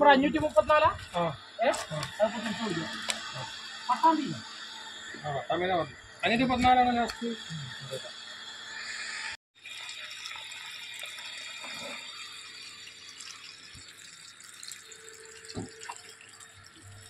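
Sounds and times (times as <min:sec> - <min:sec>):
water running: 0:00.0 - 0:05.4, 0:09.6 - 0:17.0.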